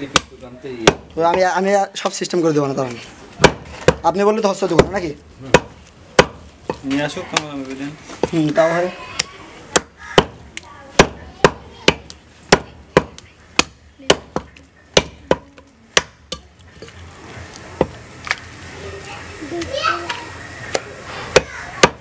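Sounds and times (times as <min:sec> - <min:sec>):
knife chopping meat on wood: 0:20.7 - 0:22.0.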